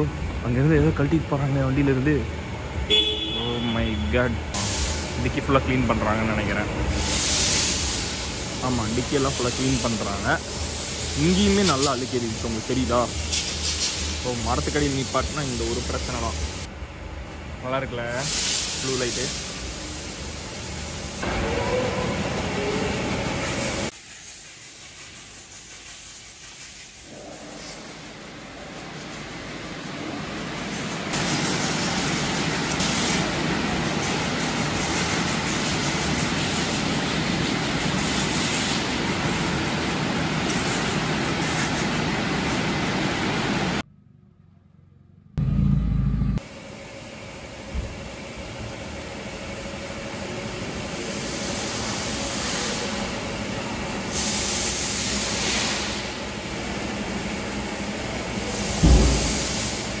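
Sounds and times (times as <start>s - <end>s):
water jet spraying: 6.9s - 16.7s, 58.4s - 60.0s
low thump: 58.8s - 59.4s.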